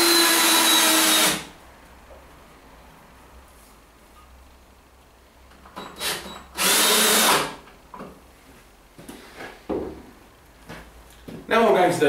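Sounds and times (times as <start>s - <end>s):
cordless drill driving screw into wood: 0.0s - 1.5s, 5.9s - 7.6s.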